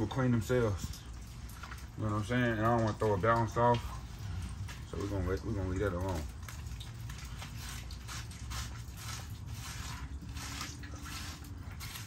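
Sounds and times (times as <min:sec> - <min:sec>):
low steady hum: 0:00.0 - 0:12.0
hands scrubbing soapy dog coat: 0:04.6 - 0:12.0.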